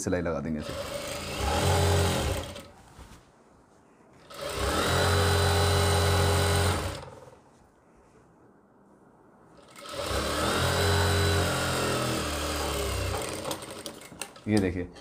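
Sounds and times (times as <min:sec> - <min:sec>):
sewing machine stitching: 0:00.6 - 0:02.7, 0:04.2 - 0:07.2, 0:09.6 - 0:15.0.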